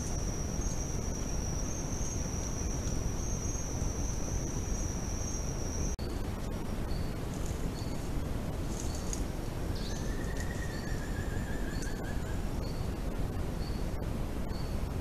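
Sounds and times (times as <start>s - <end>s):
faint wavering whistle: 9.8s - 12.8s.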